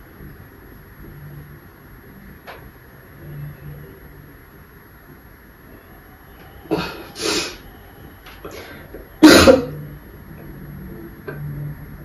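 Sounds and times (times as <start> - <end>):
man coughing: 9.2 - 9.8.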